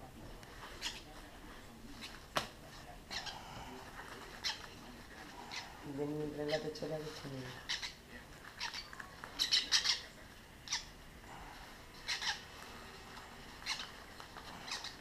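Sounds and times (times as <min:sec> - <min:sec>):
bird chicks squawking: 0:05.4 - 0:11.0, 0:12.0 - 0:12.6, 0:13.6 - 0:15.0.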